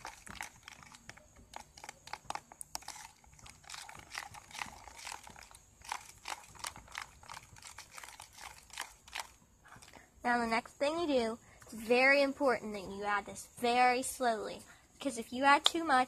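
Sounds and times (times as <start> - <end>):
plastic spoon scraping bowl: 0.0 - 9.4.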